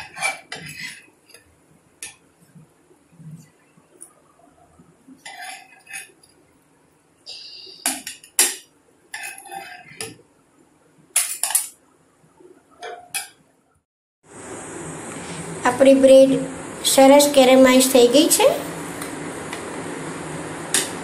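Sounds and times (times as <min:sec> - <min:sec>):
spatula scraping a pan: 0:00.0 - 0:01.4, 0:05.2 - 0:06.3, 0:09.1 - 0:10.2.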